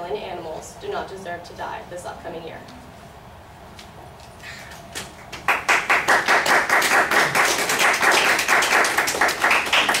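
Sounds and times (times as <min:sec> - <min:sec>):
people clapping: 0:05.0 - 0:10.0.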